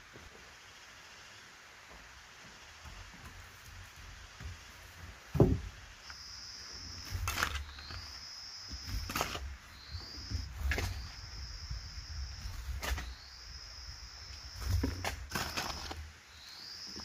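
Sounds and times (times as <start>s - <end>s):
dull heavy thump: 2.8s - 6.0s
insect buzzing: 6.0s - 17.0s
hoe chopping into dry soil: 6.9s - 11.3s, 12.4s - 13.3s, 14.5s - 16.1s.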